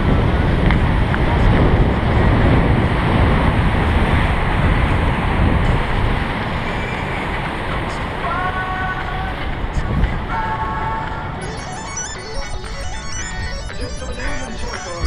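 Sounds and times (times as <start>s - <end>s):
wind blowing across microphone: 0.0s - 11.4s.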